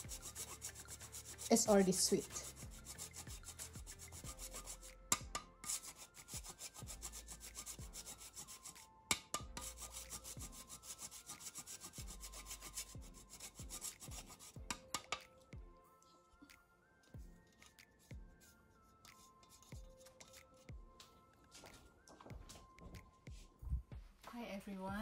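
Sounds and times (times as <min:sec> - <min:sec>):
sugar block rasping on metal grater: 0:00.0 - 0:01.6.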